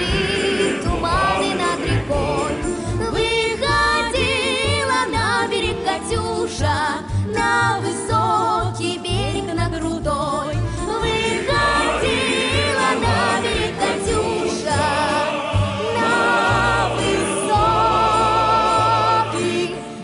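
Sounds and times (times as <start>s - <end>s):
choir singing held notes: 0.0s - 4.7s, 11.0s - 20.0s
instrumental accompaniment: 0.0s - 20.0s.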